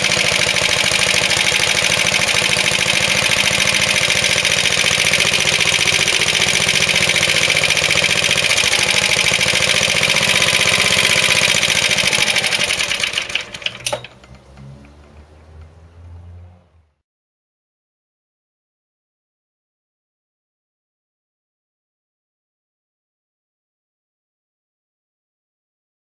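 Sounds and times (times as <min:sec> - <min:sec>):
single-cylinder petrol engine running: 0:00.0 - 0:16.8.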